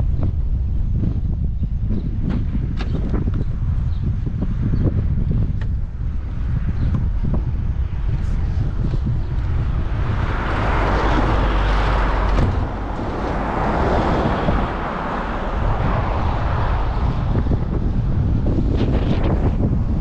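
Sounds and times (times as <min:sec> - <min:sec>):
wind rumbling on microphone: 0:00.0 - 0:20.0.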